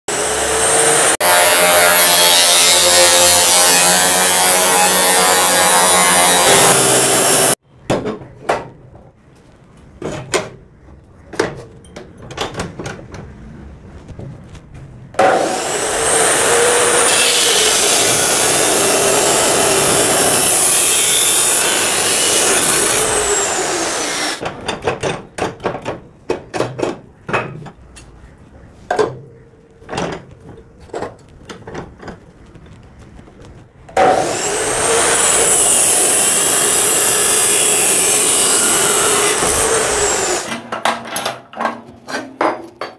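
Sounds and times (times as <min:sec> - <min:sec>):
chop saw cutting metal: 0:00.1 - 0:07.6, 0:15.2 - 0:24.4, 0:34.0 - 0:40.7.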